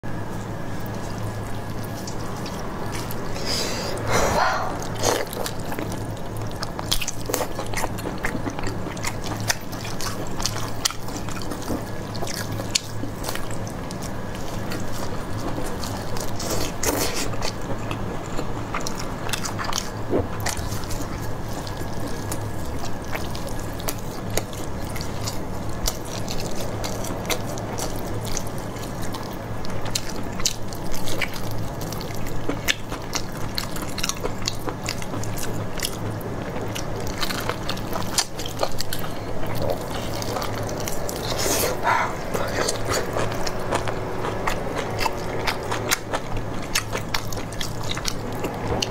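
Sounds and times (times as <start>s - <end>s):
low hum: 0.0s - 16.4s, 35.8s - 48.9s
chewing with wet mouth sounds: 0.1s - 48.9s.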